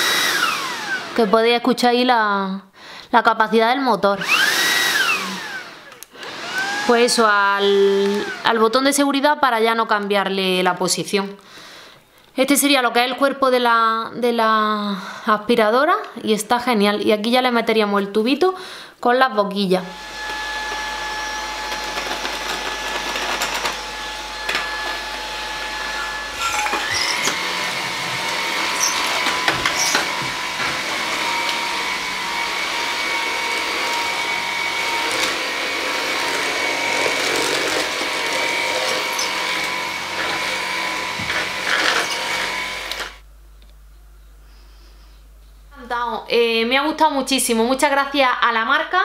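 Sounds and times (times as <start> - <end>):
vacuum cleaner motor whine: 0.0 - 1.3, 4.2 - 9.0, 19.9 - 43.3.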